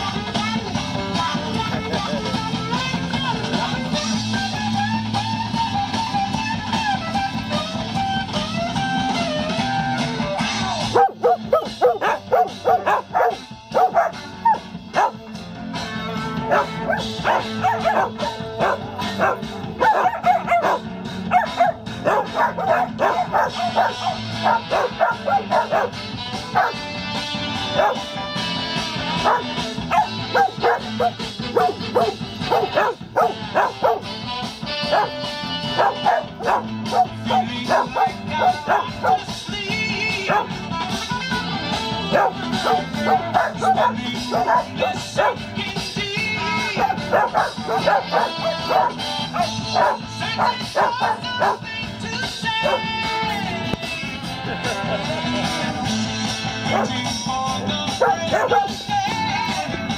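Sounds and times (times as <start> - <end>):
rock music with guitar: 0.0 - 59.9
dogs barking and yipping: 10.4 - 40.9, 41.9 - 53.1, 54.4 - 55.4, 56.3 - 59.1.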